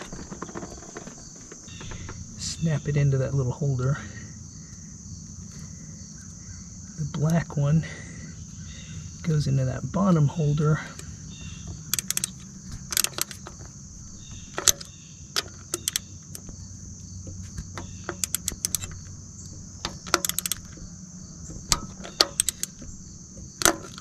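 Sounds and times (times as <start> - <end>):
ratchet wrench clicking: 11.9 - 13.5, 14.2 - 16.5, 17.8 - 19.1, 19.8 - 20.8, 21.6 - 22.8.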